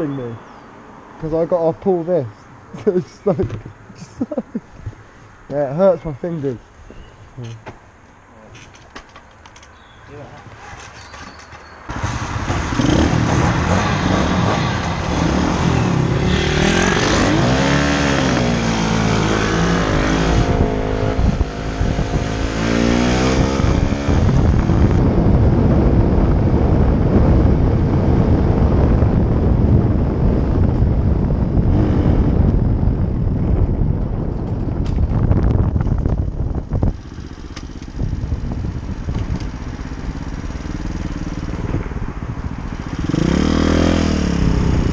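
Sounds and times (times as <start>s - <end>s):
motorbike engine revving: 11.9s - 25.2s, 36.6s - 44.9s
wind rushing over microphone: 11.9s - 44.9s.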